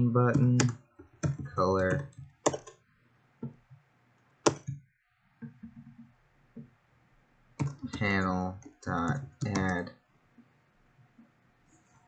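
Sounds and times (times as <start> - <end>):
keyboard keystrokes: 0.3 - 2.8, 4.4 - 4.8, 7.6 - 9.9.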